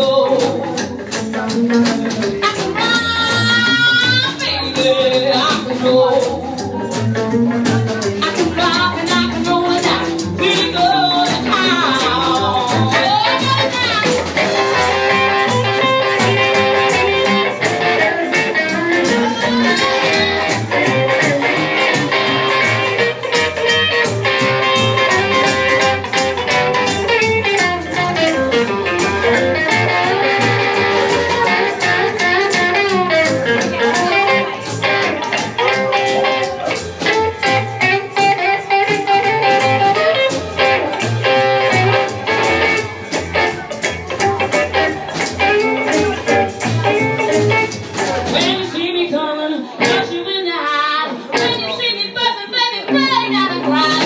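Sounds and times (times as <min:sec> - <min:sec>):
double bass: 0:00.0 - 0:48.8
drums: 0:00.0 - 0:54.0
electric guitar: 0:00.0 - 0:54.0.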